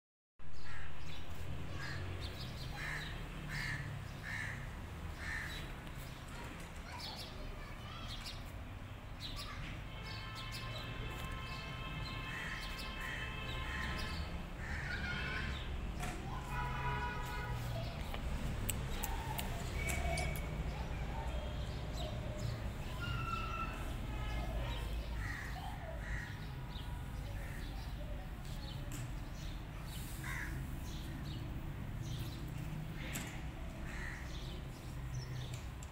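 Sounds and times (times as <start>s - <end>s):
sharp clicks: 18.0s - 20.5s.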